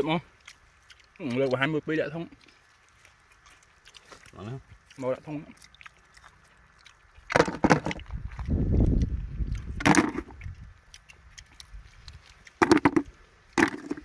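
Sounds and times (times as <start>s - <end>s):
oyster shells clacking in a bucket: 7.2s - 14.0s.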